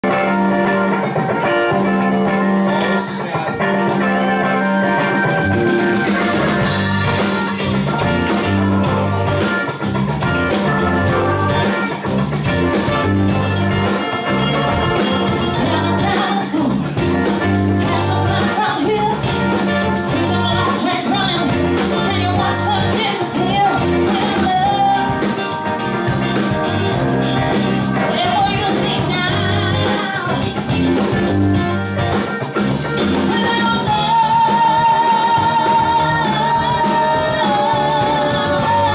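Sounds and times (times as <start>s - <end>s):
rock band playing: 0.0s - 38.9s
woman singing: 15.0s - 25.6s, 28.0s - 30.8s, 33.3s - 38.9s.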